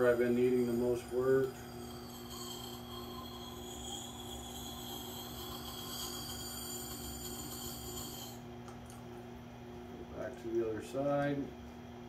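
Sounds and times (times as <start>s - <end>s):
hatchet grinding against stone: 0.0s - 8.4s
wet grinder motor hum: 0.0s - 8.5s.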